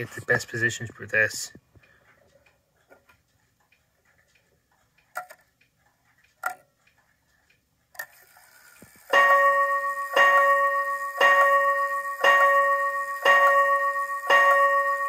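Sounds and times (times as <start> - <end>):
clock movement clicking: 0.0 - 15.0
strike train whirring: 9.1 - 15.0.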